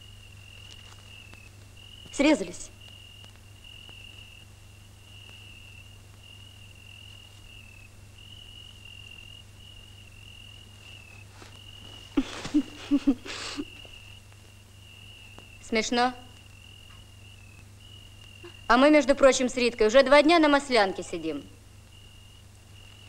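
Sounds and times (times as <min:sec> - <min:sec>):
cricket trilling: 0:00.0 - 0:23.0
burst of laughter: 0:12.2 - 0:13.9.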